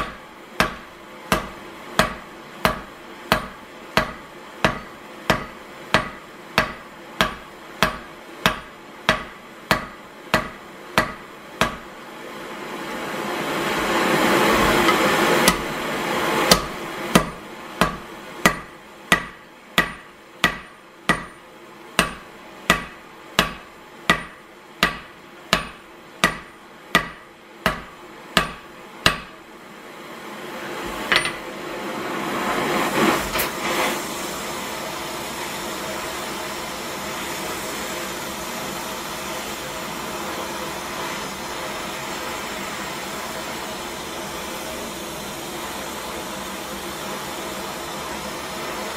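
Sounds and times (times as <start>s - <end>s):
hammer striking steel on anvil: 0.0s - 11.9s, 14.8s - 15.7s, 16.5s - 29.4s, 31.1s - 31.5s.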